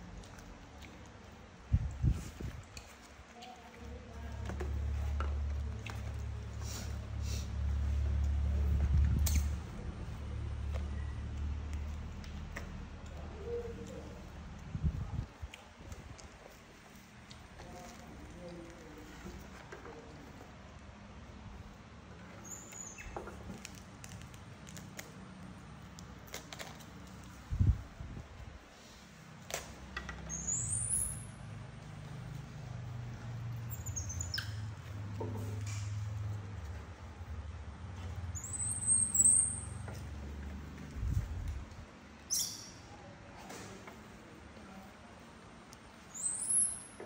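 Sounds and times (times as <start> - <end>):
baby monkey squealing: 30.3 - 31.3, 38.4 - 39.8, 46.1 - 46.8
short squeak: 38.4 - 39.9.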